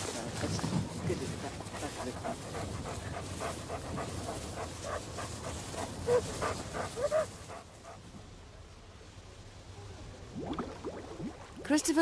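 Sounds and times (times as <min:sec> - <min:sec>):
faint hiss: 0:00.0 - 0:12.0
dogs panting: 0:00.1 - 0:08.0.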